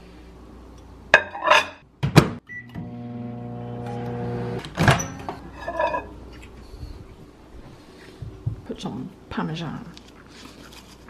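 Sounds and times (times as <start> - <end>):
microwave humming: 2.2 - 6.2.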